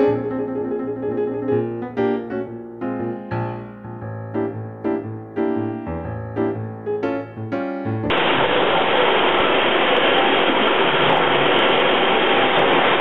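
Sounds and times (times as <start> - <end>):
piano music: 0.0 - 8.2.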